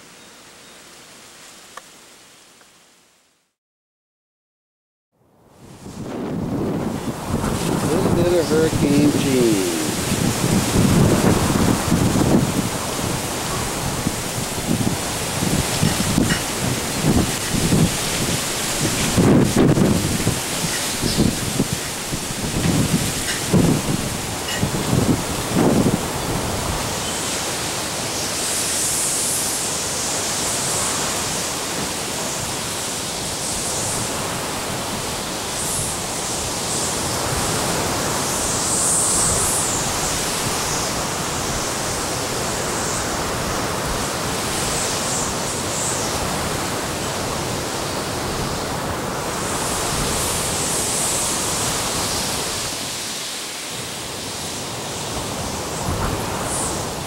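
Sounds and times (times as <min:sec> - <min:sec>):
strong wind rushing: 0:05.6 - 0:27.0.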